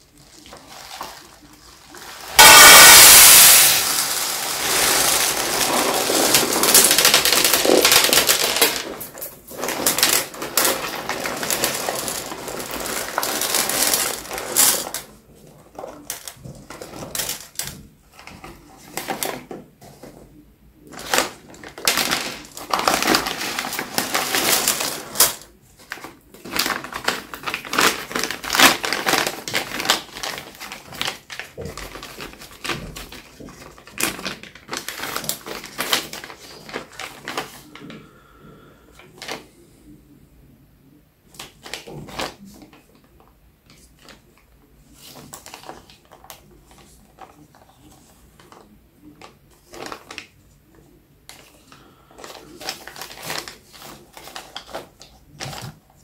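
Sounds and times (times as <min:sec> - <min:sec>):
lead shot pouring into metal tin: 0:02.2 - 0:09.0.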